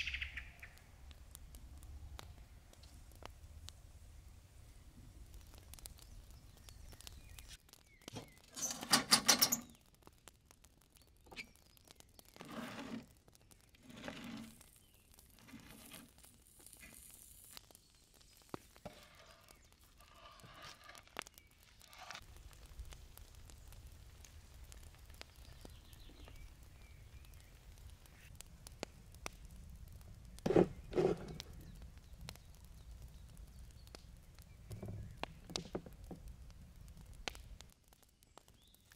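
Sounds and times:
wooden spoon scraping metal tray: 12.4s - 13.1s, 13.8s - 14.6s, 15.4s - 16.1s, 18.8s - 21.1s, 30.4s - 31.4s.

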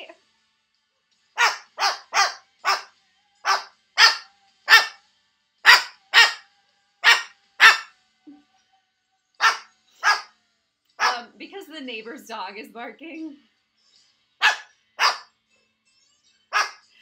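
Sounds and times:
cockatoo barking like dog: 1.4s - 5.0s, 5.6s - 6.4s, 7.0s - 7.9s, 9.4s - 10.3s, 11.0s - 11.3s, 14.4s - 15.2s, 16.5s - 16.8s.

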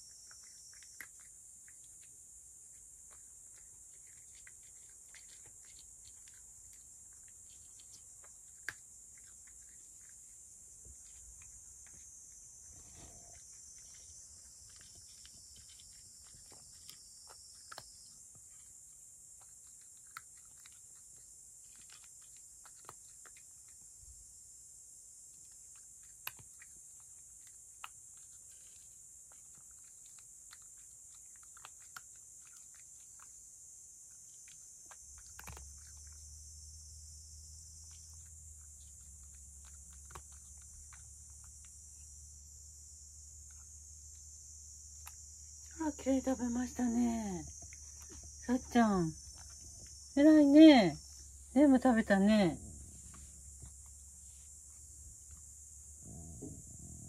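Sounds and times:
cat crunching dry kibble: 0.0s - 24.2s, 25.2s - 41.8s, 49.2s - 50.1s.

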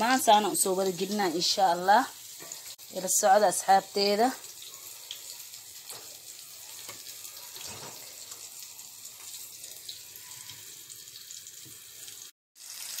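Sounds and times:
deep-frying oil sizzling: 0.0s - 13.0s.

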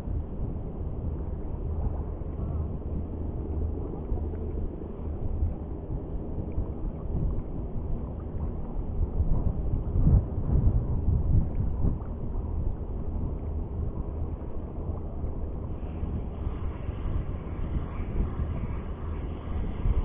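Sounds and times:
choppy shallow sea water: 0.0s - 20.0s
wind rumbling on microphone: 0.0s - 20.0s.

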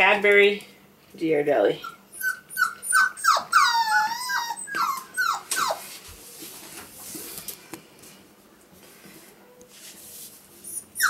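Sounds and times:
puppy whimpering: 1.8s - 5.9s, 10.6s - 11.0s
faint scuffling: 4.7s - 10.6s.

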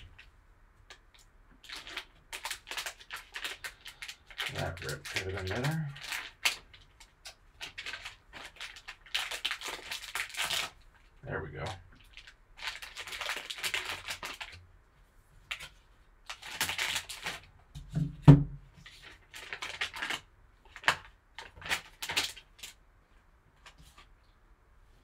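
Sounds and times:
foil wrapper crinkling: 1.6s - 10.8s, 12.0s - 14.6s, 15.5s - 17.5s, 18.8s - 22.8s.

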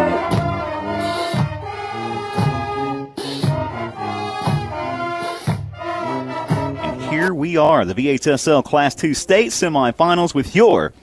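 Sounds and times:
sustained chords: 0.0s - 8.0s.

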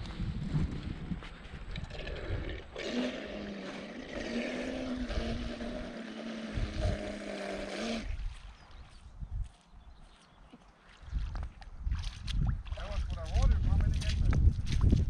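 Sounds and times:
wind buffeting microphone: 0.0s - 2.8s, 4.1s - 7.3s, 8.0s - 10.0s, 11.0s - 15.0s
model boat motor whine: 2.8s - 8.0s.

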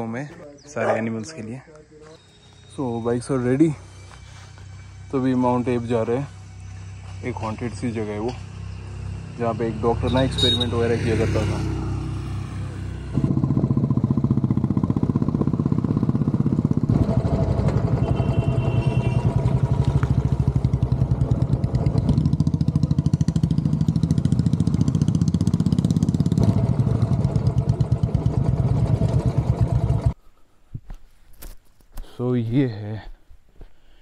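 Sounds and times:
motorcycle engine running: 7.9s - 30.2s.

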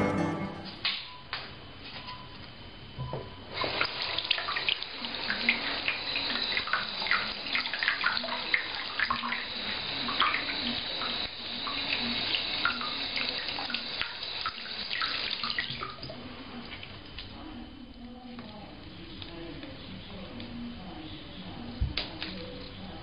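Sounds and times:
water gurgling and splashing: 3.6s - 16.1s.

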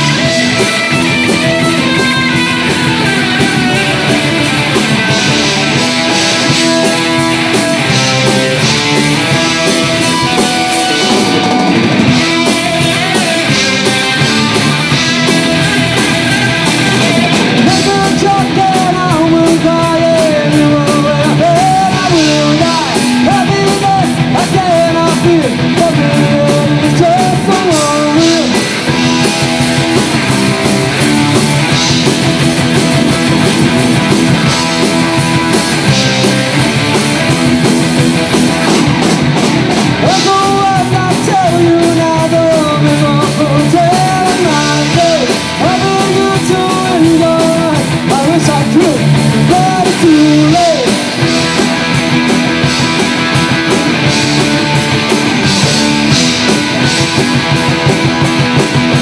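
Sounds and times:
wavering lead melody: 0.0s - 17.8s
rock band playing live: 0.0s - 59.0s.

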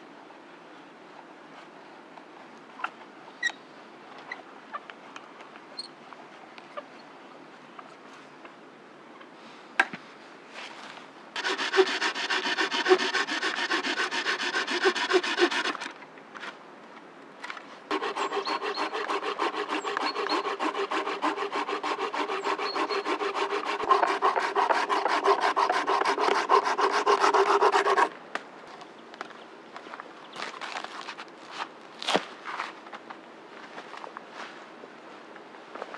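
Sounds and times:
hand tool scraping wood: 11.4s - 15.9s, 17.9s - 28.1s.

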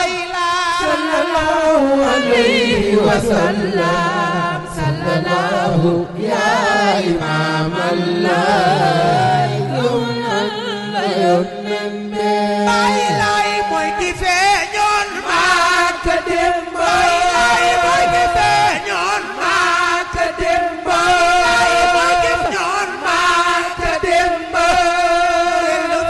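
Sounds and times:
voices chanting: 15.2s - 26.0s.

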